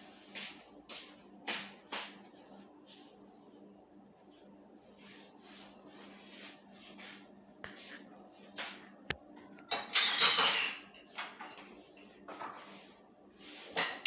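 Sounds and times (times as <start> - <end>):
hand rustling on phone microphone: 4.3 - 8.8.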